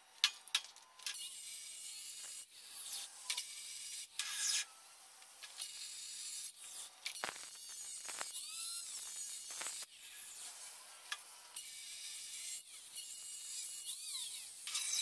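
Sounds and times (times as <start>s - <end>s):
angle grinder cutting steel: 1.1s - 4.8s, 5.4s - 15.0s.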